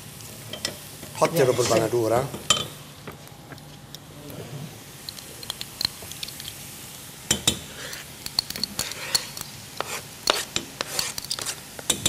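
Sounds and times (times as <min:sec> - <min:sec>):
wooden spoon stirring in metal pot: 0:07.8 - 0:12.0.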